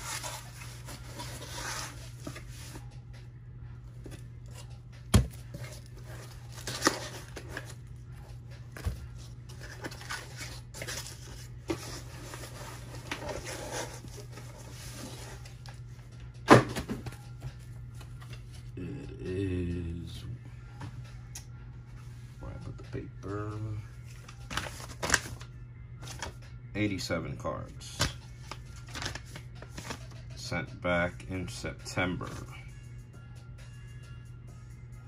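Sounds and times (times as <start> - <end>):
steady low hum: 0.0 - 35.0
cardboard box rustling and scraping: 8.8 - 15.4.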